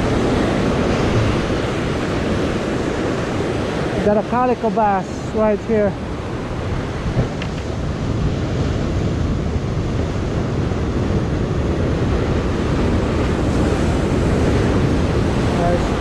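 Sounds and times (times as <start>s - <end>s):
ocean surf breaking on rocks: 0.0s - 16.0s.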